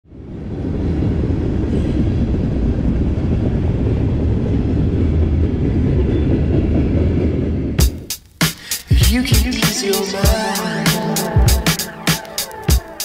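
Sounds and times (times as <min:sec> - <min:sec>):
train wheels rumbling on rails: 0:00.2 - 0:09.6.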